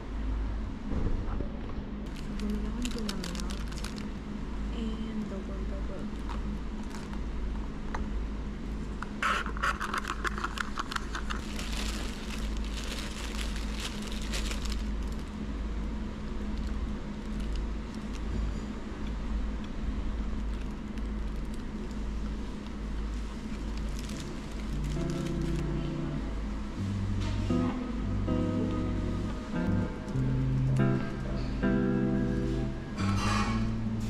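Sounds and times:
low room hum: 0.0 - 34.0
paper bag crinkling: 2.0 - 4.2, 6.1 - 7.2, 9.2 - 15.4, 16.5 - 18.5, 20.2 - 25.9
background music: 24.9 - 33.8.

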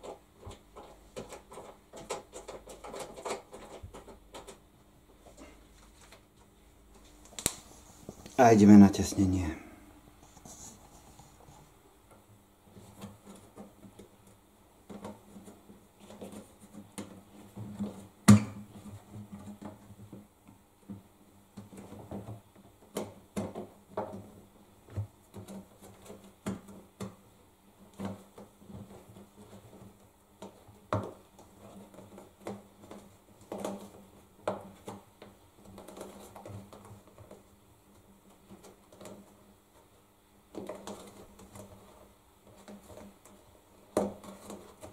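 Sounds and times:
faint steady hum: 0.0 - 44.9.

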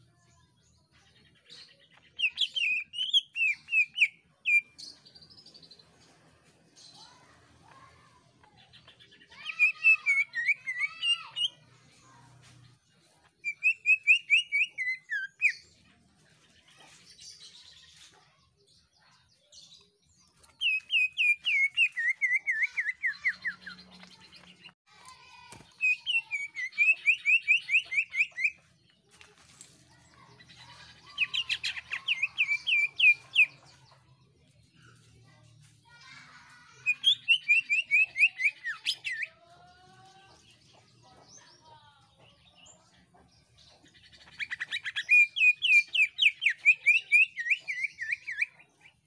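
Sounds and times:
bird singing rapid sliding chirps: 1.6 - 4.9, 20.4 - 24.7, 30.4 - 33.6.

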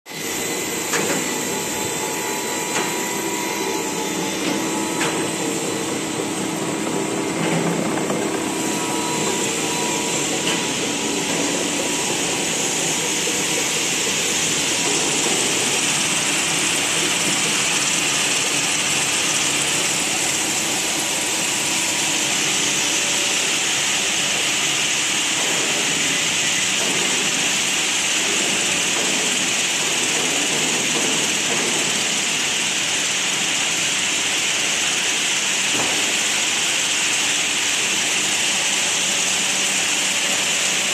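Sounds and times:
motor hum and whine: 0.1 - 40.9
blowers rushing hiss: 0.2 - 30.0.

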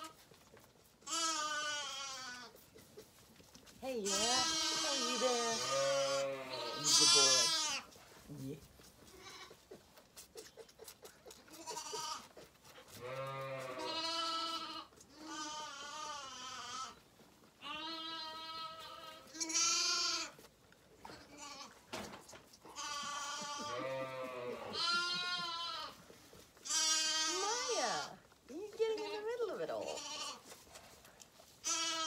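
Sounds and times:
lambs bleating: 1.0 - 2.6, 4.0 - 7.9, 9.1 - 9.8, 11.5 - 17.0, 17.6 - 20.4, 21.1 - 21.8, 22.6 - 28.2, 29.7 - 30.5, 31.6 - 32.0.

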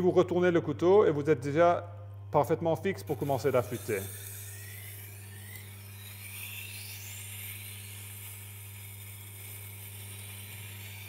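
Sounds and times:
grinder motor hum: 2.6 - 11.0.

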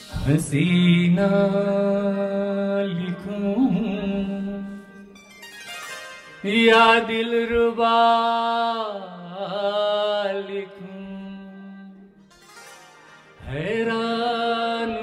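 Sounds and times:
man singing long notes: 6.4 - 15.0.

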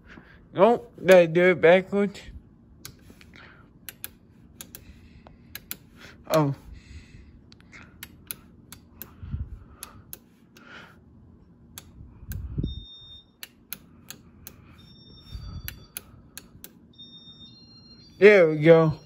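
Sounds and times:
wall switches clicking: 2.8 - 4.9, 5.5 - 6.5, 8.0 - 9.2, 9.8 - 10.7, 11.7 - 12.5, 13.4 - 14.6, 15.6 - 16.8
faint high-pitched beeps: 14.6 - 19.0.

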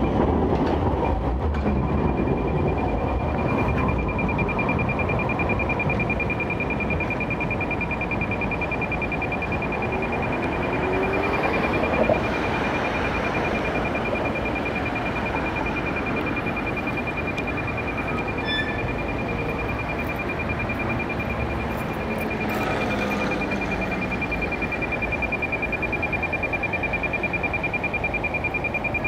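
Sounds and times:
tram background noise: 0.0 - 29.0
high-pitched electronic beeping: 1.0 - 29.0.

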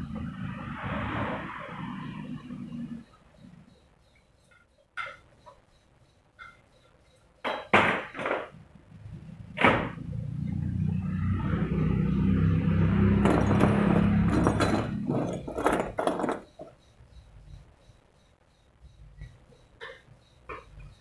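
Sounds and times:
metal washers jingling on chain: 13.1 - 16.7.

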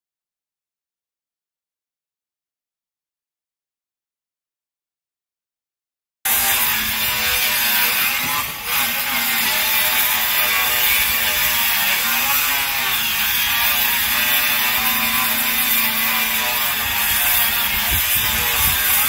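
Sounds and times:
motor running steadily: 8.2 - 19.0.

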